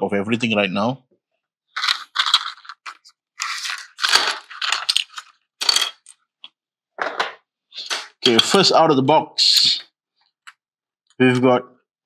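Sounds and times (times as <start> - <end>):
plastic packaging crinkling: 1.8 - 5.4.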